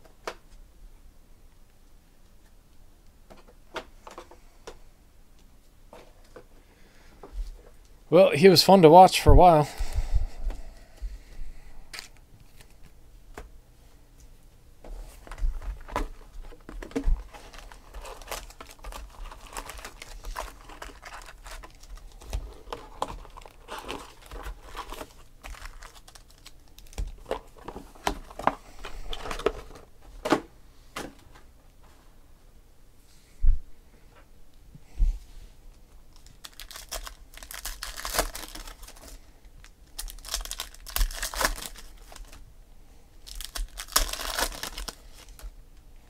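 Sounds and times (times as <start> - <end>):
foil packs crinkling: 15.1 - 29.9, 36.1 - 42.4, 43.2 - 45.5.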